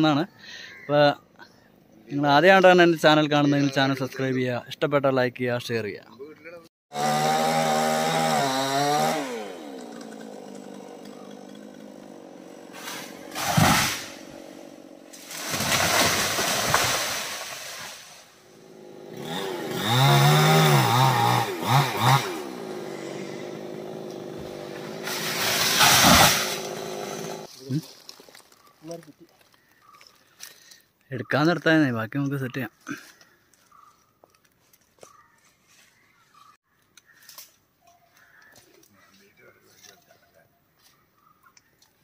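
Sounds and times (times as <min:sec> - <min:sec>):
chainsaw engine revving: 0:06.9 - 0:17.8, 0:18.4 - 0:27.5.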